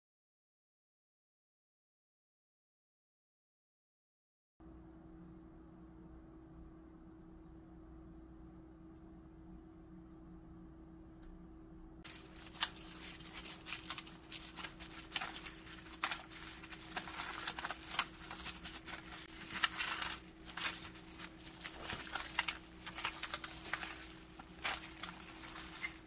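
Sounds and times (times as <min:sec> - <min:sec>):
plastic glove and paper crinkling: 0:12.0 - 0:26.0
wet fish handling: 0:12.1 - 0:26.0.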